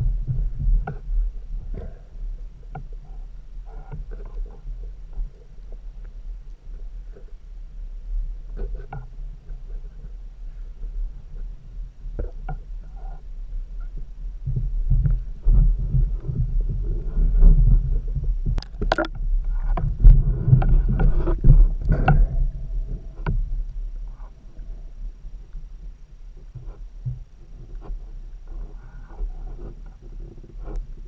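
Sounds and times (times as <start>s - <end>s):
underwater rumbling water movement: 0.0s - 31.0s
sharp clicks and knocks: 18.4s - 22.4s.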